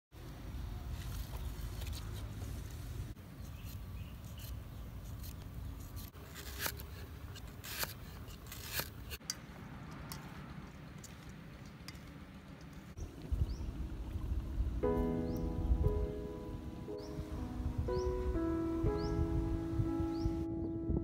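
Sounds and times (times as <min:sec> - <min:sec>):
knife scraping and cutting: 0:03.4 - 0:09.3
low background rumble: 0:11.5 - 0:21.0.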